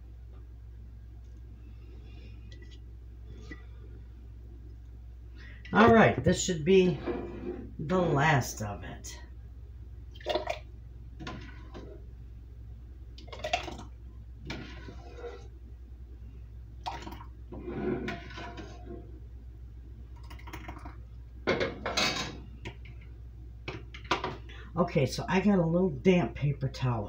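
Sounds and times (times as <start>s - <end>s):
metal ladle scraping a pot: 6.8s - 7.8s, 14.4s - 15.5s, 17.5s - 19.1s.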